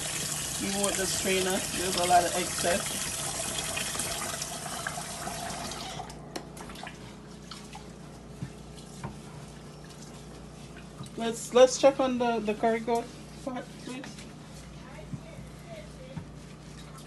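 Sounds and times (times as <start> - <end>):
water running into sink: 0.0 - 7.0.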